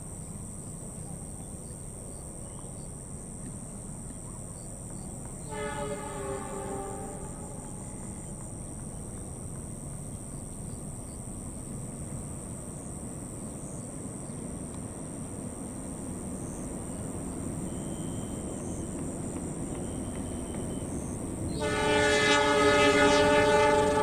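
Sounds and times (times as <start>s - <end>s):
train rumble: 0.0s - 24.0s
locomotive horn blast: 5.4s - 8.1s, 21.5s - 24.0s.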